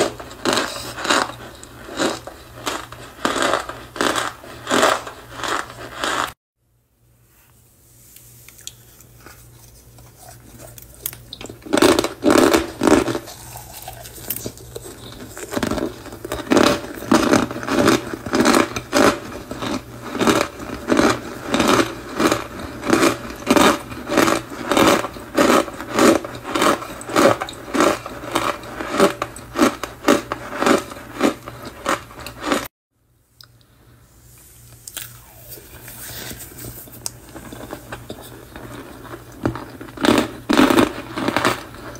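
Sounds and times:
fingers crunching cornstarch: 0.0s - 6.3s, 8.5s - 32.6s, 34.8s - 41.9s.

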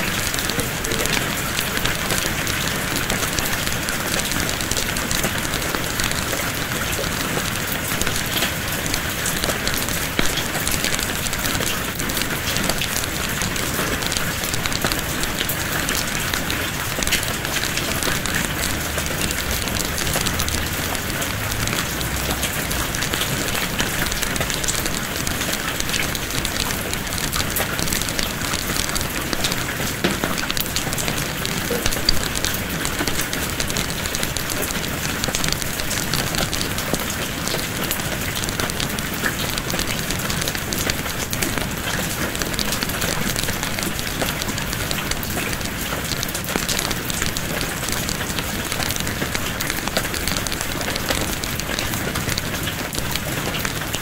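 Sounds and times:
steady rain falling: 0.0s - 54.0s
wood fire crackling: 0.1s - 54.0s.

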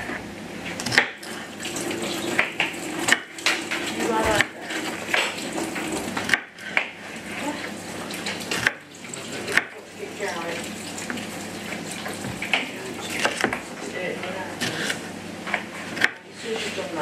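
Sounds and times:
knife chopping on plastic board: 0.7s - 1.4s, 2.0s - 7.0s, 8.2s - 8.8s, 9.4s - 9.8s, 12.1s - 16.3s.

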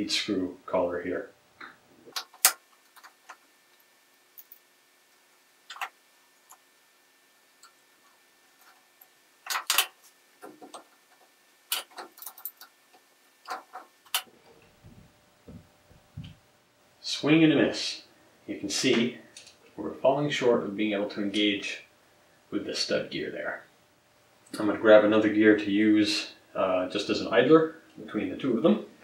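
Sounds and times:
metallic clicks and clinks: 11.7s - 12.7s.

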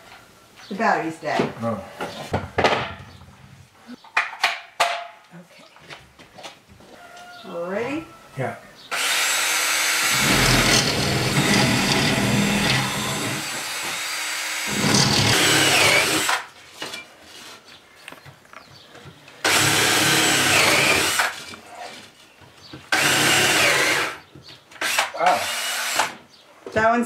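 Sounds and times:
cordless drill boring wood: 8.9s - 16.5s, 19.4s - 21.5s, 22.9s - 24.2s, 24.8s - 26.2s.

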